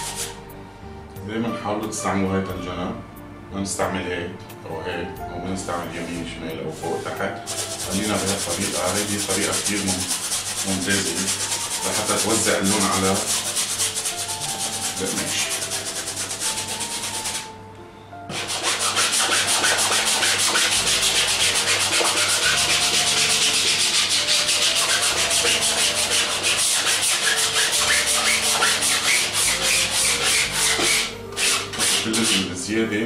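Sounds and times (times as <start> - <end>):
paintbrush scrubbing on canvas: 0.0 - 0.4, 6.8 - 17.5, 18.3 - 32.5.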